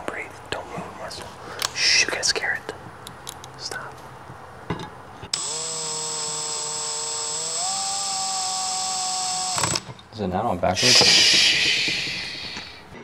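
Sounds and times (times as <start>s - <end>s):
cordless drill motor whine: 5.3s - 9.9s.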